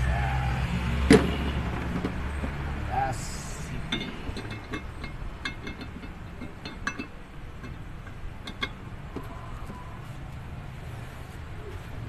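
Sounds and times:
light metallic clinks: 3.5s - 8.9s.

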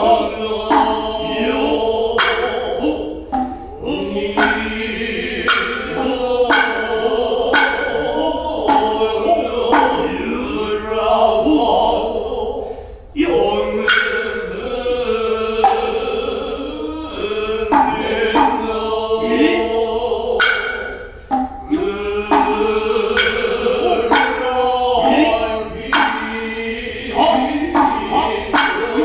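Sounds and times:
sharp hand drum strokes: 0.0s - 12.2s, 13.4s - 29.0s
men chanting in unison: 0.0s - 29.0s.

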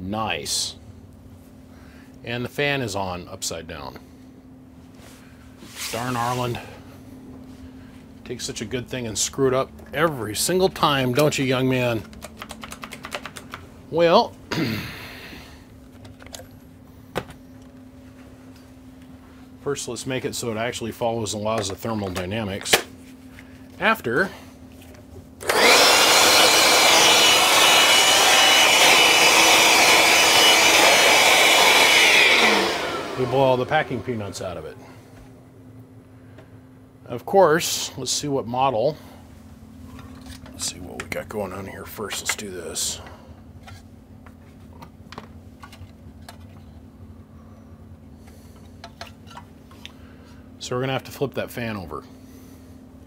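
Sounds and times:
steady low hum: 0.0s - 53.0s
electric blower rushing air: 25.4s - 34.6s.

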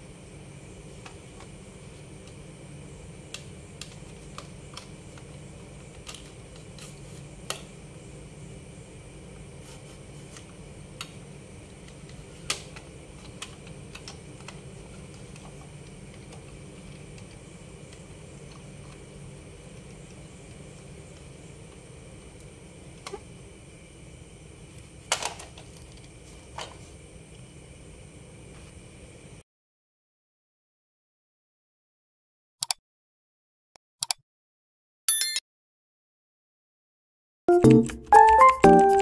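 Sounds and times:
low background hum: 0.0s - 29.4s.

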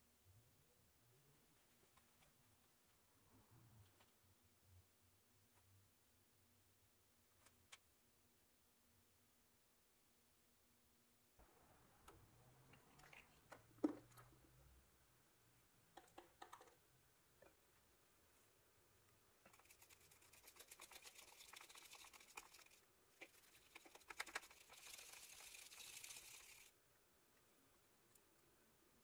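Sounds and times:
toothbrush scrubbing wet wheel: 19.5s - 26.7s.

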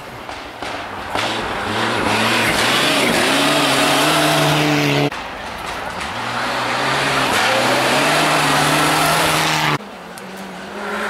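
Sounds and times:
rally car engine at high revs: 1.1s - 5.1s, 6.0s - 9.8s, 10.5s - 11.0s.

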